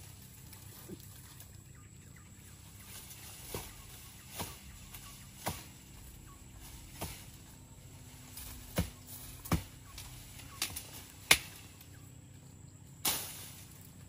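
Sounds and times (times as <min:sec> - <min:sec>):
wood being chopped: 0:03.5 - 0:05.8, 0:06.9 - 0:07.3, 0:08.6 - 0:11.6.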